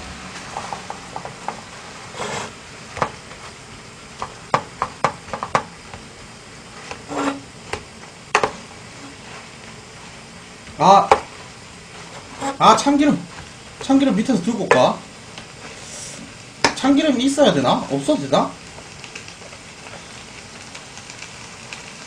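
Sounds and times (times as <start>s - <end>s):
food sizzling: 0.0s - 22.0s
chopsticks scraping a pot: 2.1s - 2.6s, 7.1s - 7.5s, 12.0s - 12.9s.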